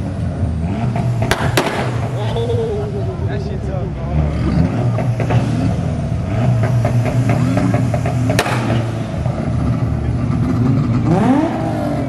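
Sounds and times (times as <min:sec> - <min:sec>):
car engine on launch limiter: 0:00.4 - 0:12.0
sharp exhaust bang: 0:00.9 - 0:02.3, 0:04.8 - 0:09.4
exhaust pops crackling: 0:00.9 - 0:02.4, 0:04.8 - 0:11.5.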